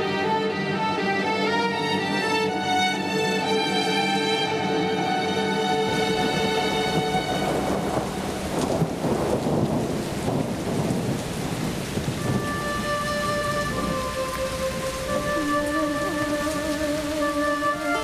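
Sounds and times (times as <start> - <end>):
sustained background music: 0.0 - 9.8, 12.2 - 18.0
rain falling: 0.0 - 18.0
thunder: 5.9 - 15.4.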